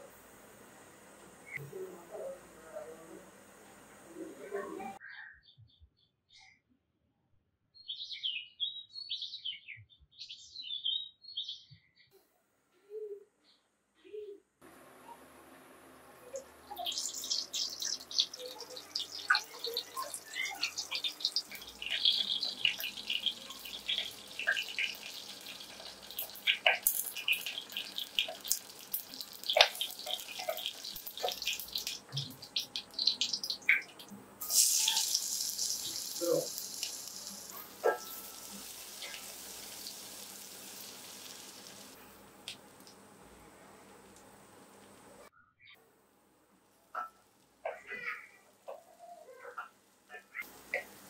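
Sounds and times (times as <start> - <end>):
loud sizzle in hot oil: 16.2 - 42.0, 49.8 - 51.0
hot oil crackling and popping: 16.3 - 43.1, 46.6 - 51.0.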